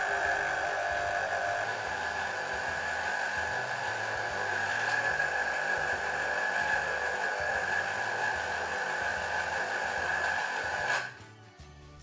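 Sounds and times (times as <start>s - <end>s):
citrus juicer motor whining: 0.0s - 11.3s.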